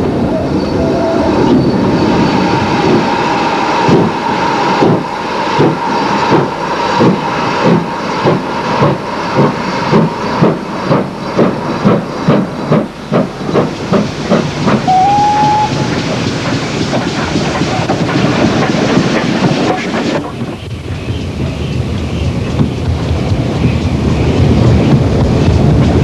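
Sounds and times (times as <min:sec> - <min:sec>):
rush of steam and running noise: 0:00.0 - 0:26.0
steam locomotive exhaust beats: 0:01.4 - 0:26.0
train whistle blast: 0:14.9 - 0:15.9.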